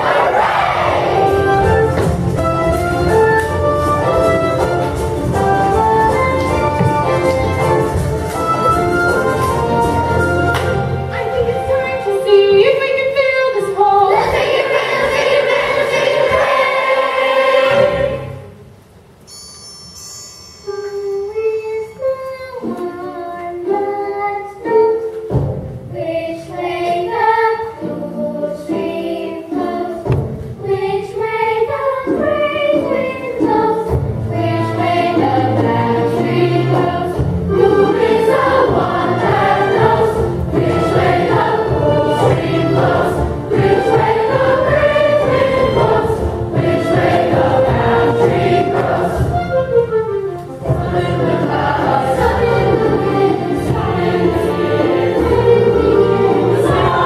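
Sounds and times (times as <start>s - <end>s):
choir singing with accompaniment: 0.0s - 11.6s, 13.6s - 18.7s, 24.6s - 57.0s
high tinkling: 19.3s - 22.0s.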